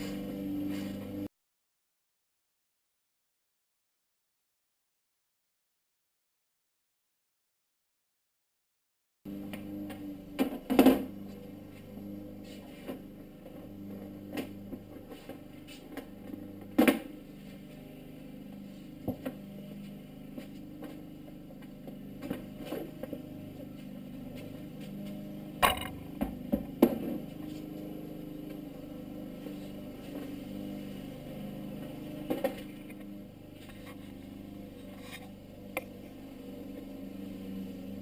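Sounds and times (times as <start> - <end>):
steady low hum: 0.0 - 1.3, 9.3 - 38.0.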